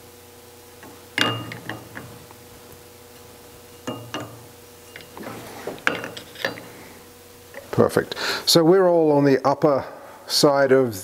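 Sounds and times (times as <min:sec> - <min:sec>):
faint steady hum: 0:00.0 - 0:11.0
micrometer clinking against steel: 0:00.8 - 0:02.4, 0:03.2 - 0:05.2.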